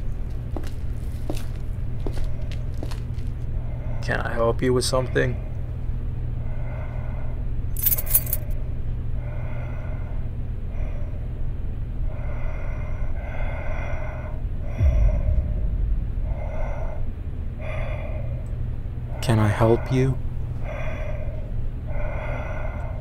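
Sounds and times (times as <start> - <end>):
low steady drone: 0.0 - 23.0
deep low swell: 14.6 - 19.1.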